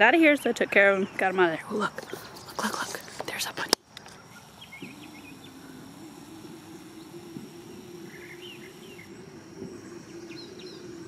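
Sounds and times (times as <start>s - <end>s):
high insect drone: 0.0s - 11.0s
low steady hum: 0.0s - 11.0s.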